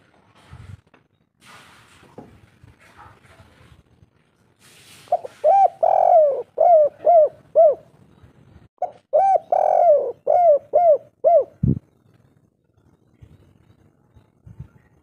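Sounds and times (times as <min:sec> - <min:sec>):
dove cooing: 0:05.1 - 0:08.0, 0:08.8 - 0:11.8.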